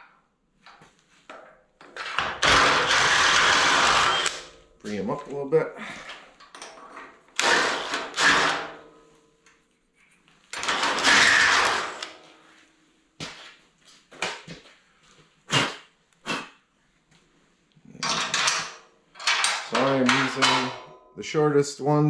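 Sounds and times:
cordless drill drilling steel: 2.4 - 4.5, 7.4 - 8.7, 10.6 - 12.1
metal bolts clinking: 17.9 - 21.0.

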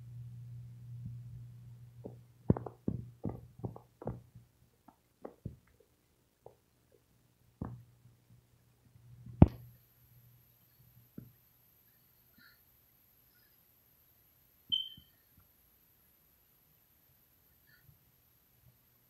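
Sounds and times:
low hum: 0.0 - 4.4
faint high whine: 13.1 - 15.3.

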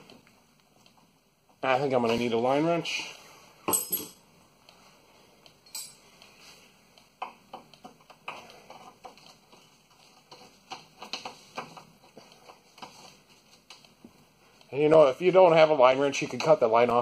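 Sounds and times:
hand tools clinking: 3.7 - 4.2, 5.6 - 6.0.

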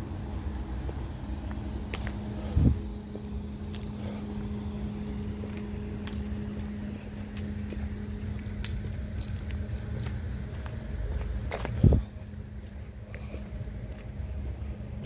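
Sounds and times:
low mechanical hum: 0.0 - 15.0.

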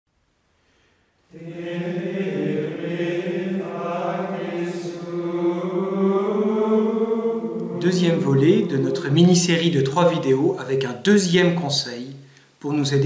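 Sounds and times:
choir chanting: 1.3 - 10.6.

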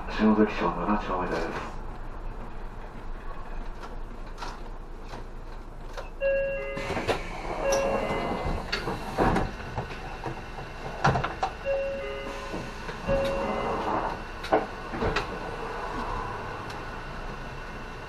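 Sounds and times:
bus engine idling: 0.0 - 18.0
bus door mechanism clunking: 4.3 - 15.6
electronic warning beeps: 7.6 - 8.4, 11.6 - 14.0.

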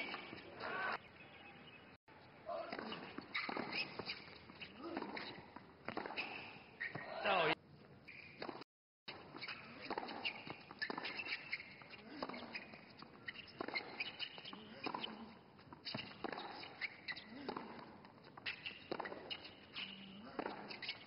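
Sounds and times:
tennis ball struck by rackets: 2.5 - 7.2, 8.3 - 15.2, 15.8 - 17.9.

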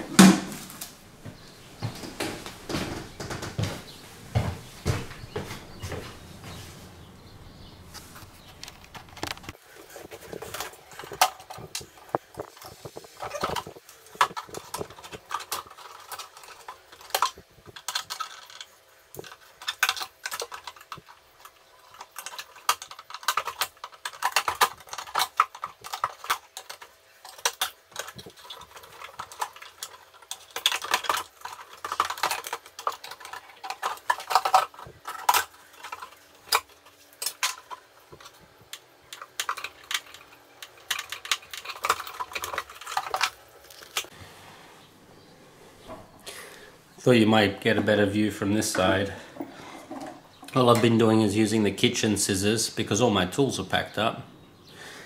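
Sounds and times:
sharp clicks and clatter: 7.9 - 44.1.

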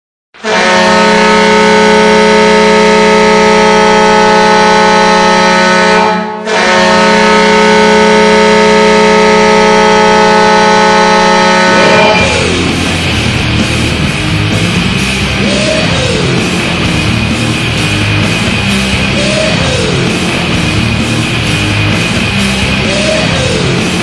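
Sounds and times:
goal horn blasts: 0.4 - 12.6.

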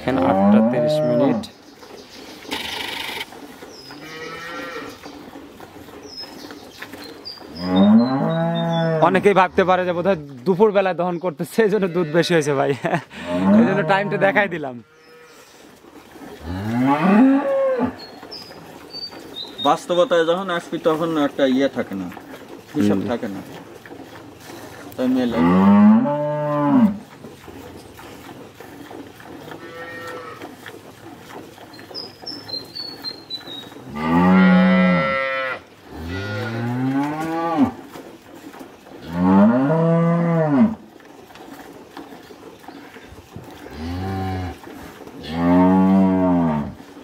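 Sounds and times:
cows mooing: 0.0 - 1.6, 2.5 - 5.2, 7.4 - 10.1, 11.6 - 38.0, 39.0 - 40.9, 42.6 - 47.0.

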